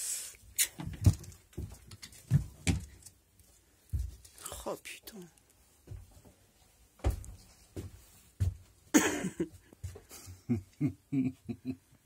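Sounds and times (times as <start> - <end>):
short voiced sounds from person: 4.4 - 5.4.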